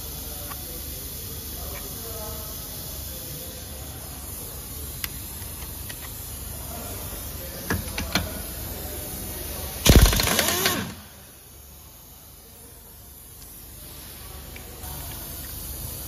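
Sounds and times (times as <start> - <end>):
air impact wrench hammering: 9.8 - 11.1.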